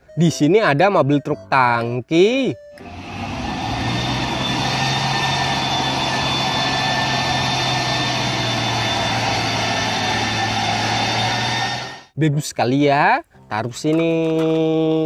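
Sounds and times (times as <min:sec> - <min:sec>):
truck diesel engine running: 0:02.8 - 0:12.1.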